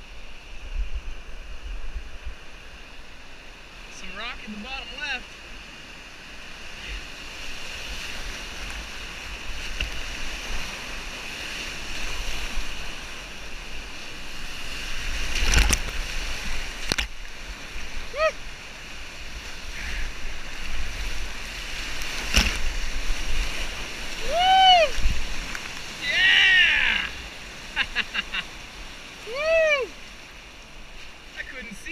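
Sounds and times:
waves splashing over boat: 1.2 - 31.9
whitewater rushing: 6.6 - 31.9.

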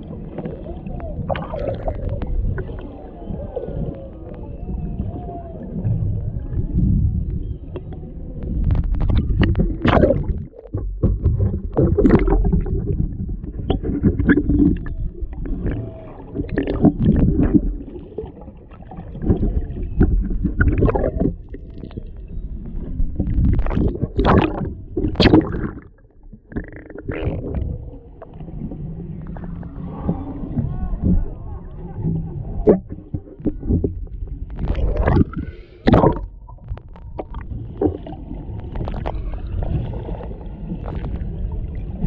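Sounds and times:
underwater rumbling and gurgling: 0.0 - 42.0.

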